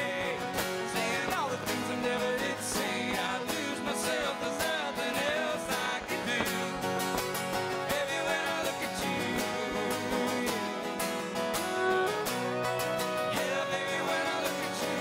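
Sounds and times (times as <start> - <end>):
acoustic guitars strumming: 0.0 - 15.0
fiddle playing: 0.0 - 15.0.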